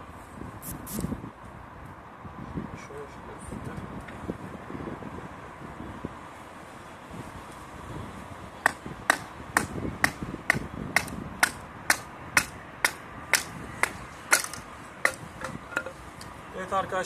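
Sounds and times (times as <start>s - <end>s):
stick knocking on knife spine: 8.7s - 16.0s.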